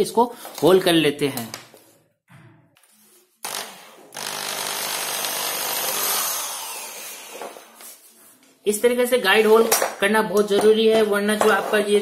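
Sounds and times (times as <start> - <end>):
electric drill boring into wood: 3.4 - 7.8.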